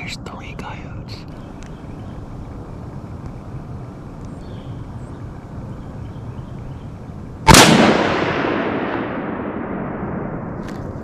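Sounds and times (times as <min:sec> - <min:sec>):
rifle shot with rolling echo: 0:07.4 - 0:11.0.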